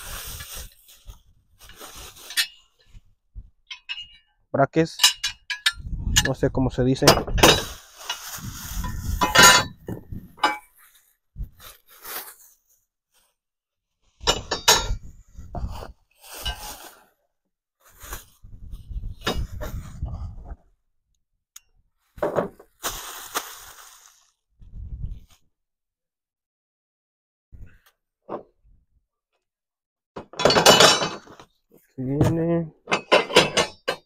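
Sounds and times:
scraping and rustling: 0.0s - 3.0s, 7.5s - 12.6s
metal brackets clinking: 2.2s - 2.7s, 3.7s - 7.7s, 9.2s - 9.8s, 10.4s - 10.7s, 14.3s - 15.0s, 30.4s - 31.3s, 32.9s - 34.0s.

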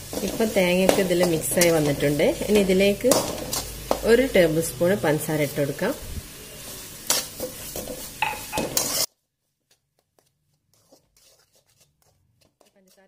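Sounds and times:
metal spoon scraping a pan: 0.0s - 5.6s, 6.6s - 9.1s.

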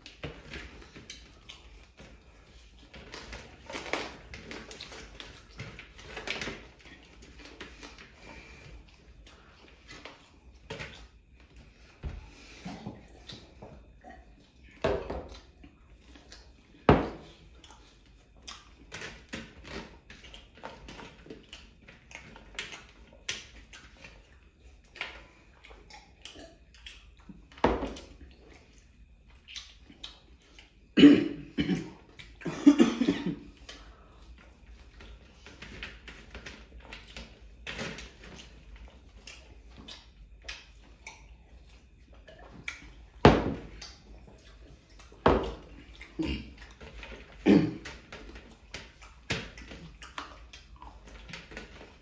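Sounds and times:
people chewing: 0.0s - 52.0s.

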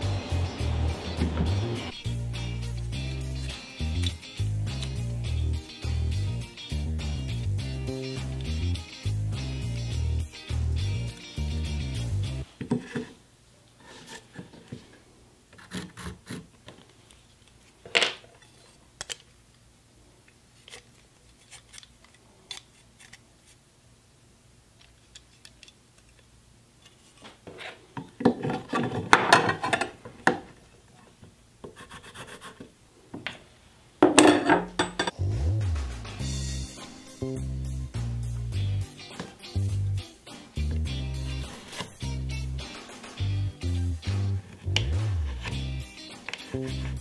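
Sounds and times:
pencil scratching on wood: 15.6s - 16.5s, 31.6s - 32.7s.

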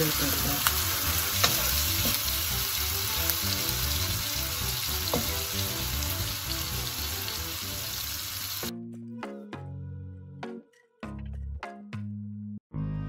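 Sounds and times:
food sizzling in a wok: 0.0s - 8.7s
wooden spatula tapping pan: 5.0s - 5.5s.

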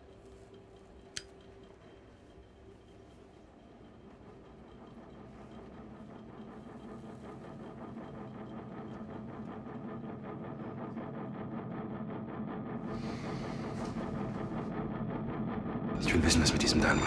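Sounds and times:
low pulsing synthesized drone: 0.0s - 17.0s.

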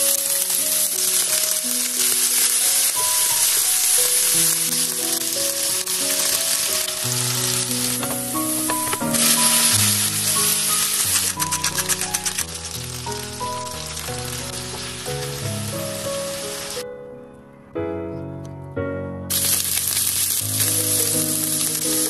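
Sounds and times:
beef sizzling in oil: 0.0s - 16.8s, 19.3s - 22.0s
light background music: 0.0s - 16.8s.

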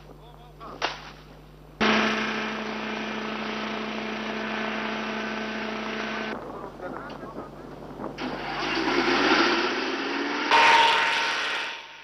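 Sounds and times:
sprayer engine droning: 1.8s - 6.4s.

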